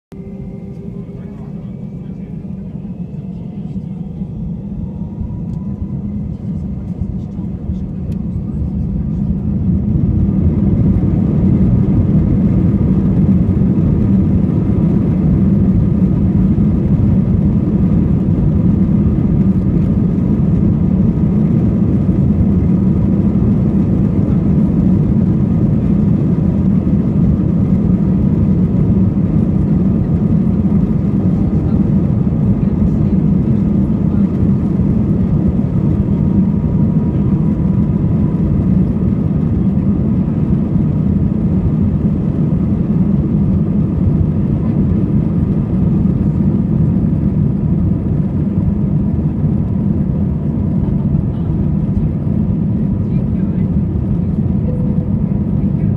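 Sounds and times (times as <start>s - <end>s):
faint steady whine: 0.1s - 10.6s
jet engines rumbling: 0.1s - 55.9s.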